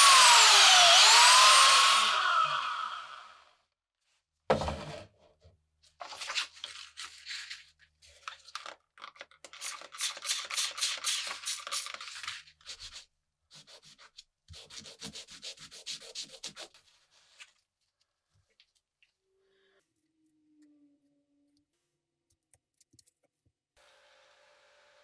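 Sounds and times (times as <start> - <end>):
sandpaper rubbing: 9.7 - 17.6.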